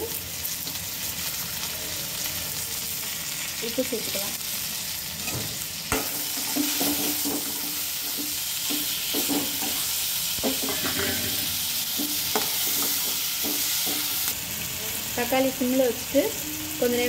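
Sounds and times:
vegetables sizzling in oil: 0:00.0 - 0:17.0
steel spoon scraping a pan: 0:06.1 - 0:14.3.

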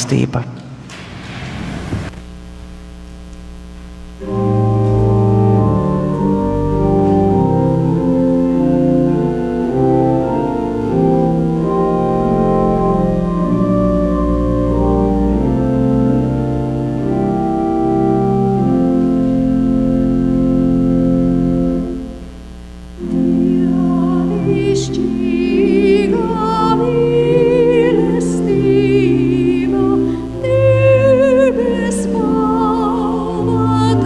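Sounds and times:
low steady hum: 0:00.0 - 0:34.0
church organ playing chords: 0:04.0 - 0:34.0.

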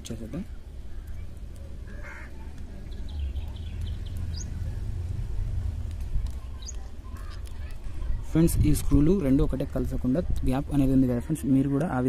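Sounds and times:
steady low rumble: 0:00.0 - 0:10.9
small bird chirping: 0:00.1 - 0:05.2, 0:05.9 - 0:07.8.

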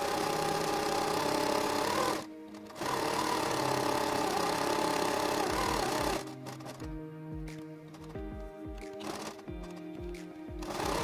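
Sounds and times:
sewing machine stitching: 0:00.0 - 0:06.8, 0:09.0 - 0:09.4, 0:10.6 - 0:11.0.

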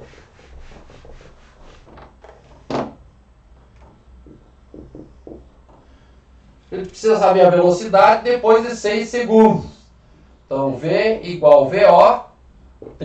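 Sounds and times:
eraser rubbing on whiteboard: 0:00.0 - 0:02.7.

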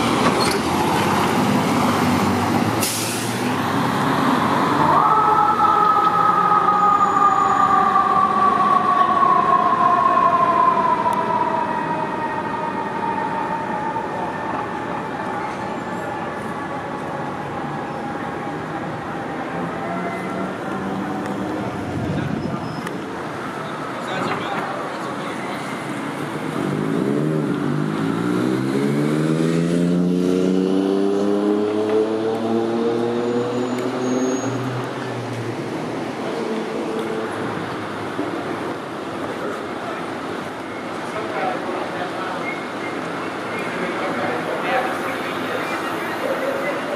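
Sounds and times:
street noise: 0:00.0 - 0:46.9
fire engine siren winding down: 0:02.7 - 0:22.0
vehicle engine accelerating: 0:26.1 - 0:35.7.

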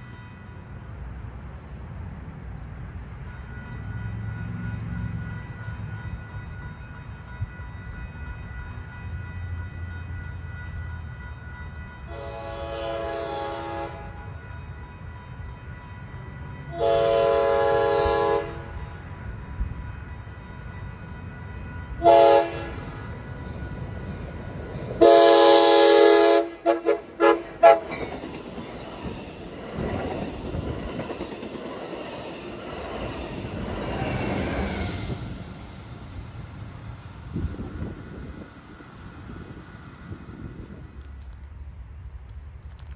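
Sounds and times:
locomotive horn blasts: 0:12.0 - 0:14.4, 0:16.7 - 0:19.0, 0:21.9 - 0:23.1, 0:25.0 - 0:28.0.

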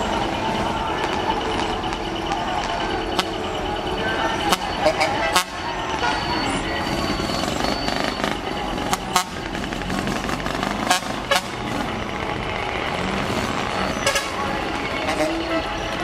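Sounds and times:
diesel truck engine rumbling: 0:00.0 - 0:16.0.

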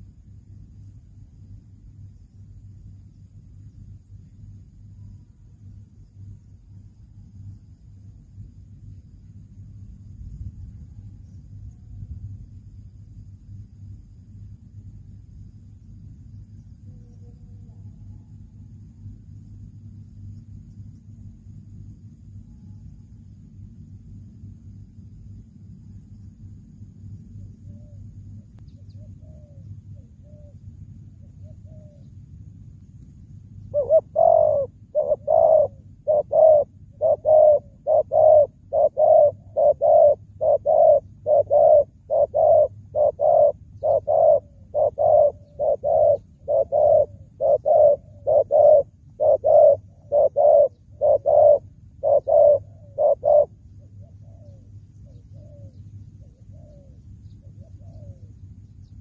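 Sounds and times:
dove cooing: 0:27.3 - 0:32.1, 0:33.6 - 0:58.5.

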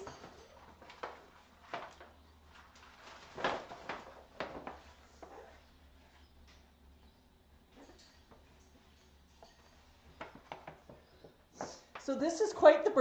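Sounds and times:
paper bag rustling and crinkling: 0:00.1 - 0:05.7.

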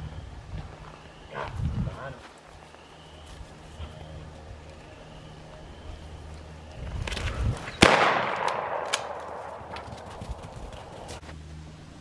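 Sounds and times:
loud sharp crack with echo: 0:07.8 - 0:09.9.

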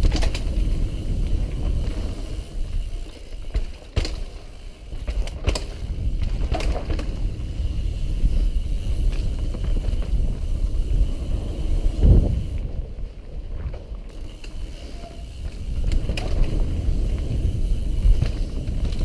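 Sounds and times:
bike clicks and rattles: 0:00.0 - 0:19.0
low rumble of bike ride: 0:00.0 - 0:19.0.

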